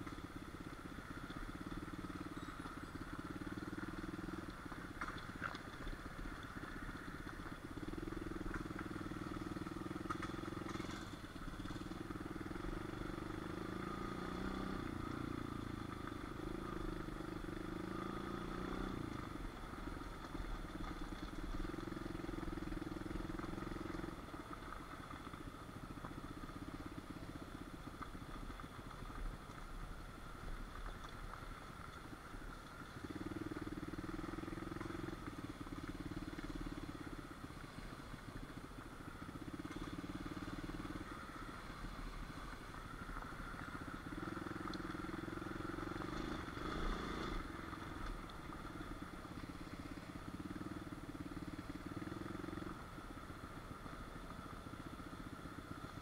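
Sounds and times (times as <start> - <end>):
pit bike engine revving: 12.2 - 19.0, 44.1 - 48.0.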